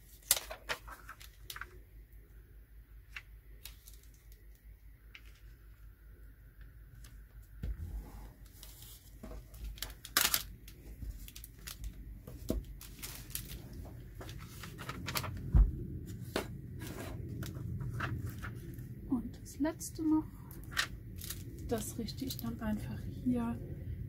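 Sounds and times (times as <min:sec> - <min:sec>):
paper sheets rustling: 0:00.0 - 0:01.8, 0:08.5 - 0:18.8
plastic film peeling and crackling: 0:00.0 - 0:01.8, 0:03.1 - 0:05.6, 0:08.5 - 0:15.5, 0:20.5 - 0:22.5.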